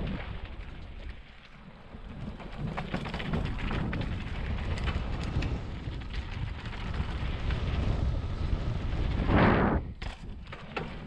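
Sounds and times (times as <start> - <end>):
wind buffeting microphone: 2.3 - 10.6.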